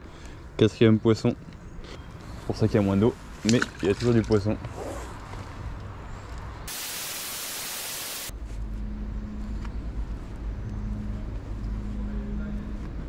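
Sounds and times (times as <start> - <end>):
white-noise static burst: 6.7 - 8.3.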